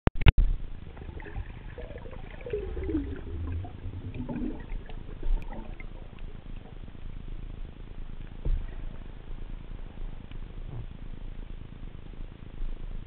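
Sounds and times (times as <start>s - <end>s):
faint clicks and crackles: 0.2s - 8.7s
underwater rumble: 0.2s - 13.0s
wavering gurgling tones: 0.6s - 7.2s.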